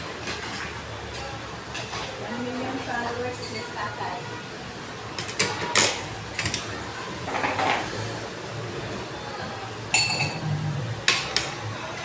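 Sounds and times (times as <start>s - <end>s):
tableware clinking: 7.3s - 8.0s, 9.9s - 10.6s.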